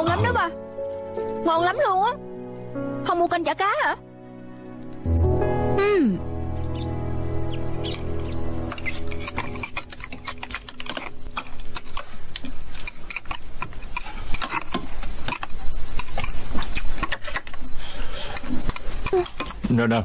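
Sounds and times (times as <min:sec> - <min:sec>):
background music: 0:00.0 - 0:20.0
chopsticks and spoons clicking on bowls: 0:08.7 - 0:17.6, 0:18.2 - 0:19.7.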